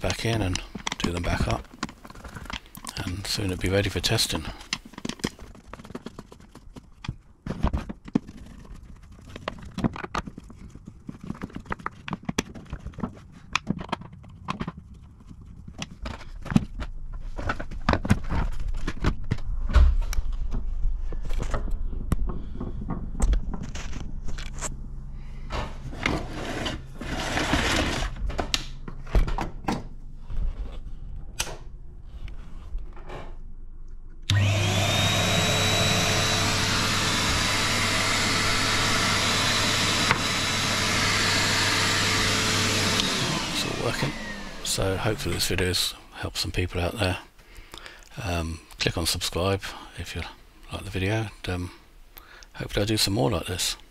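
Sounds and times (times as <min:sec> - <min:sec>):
clicks and knocks of handling: 0:00.1 - 0:03.0, 0:04.6 - 0:19.5
vacuum cleaner motor running: 0:25.5 - 0:28.2, 0:34.3 - 0:45.9.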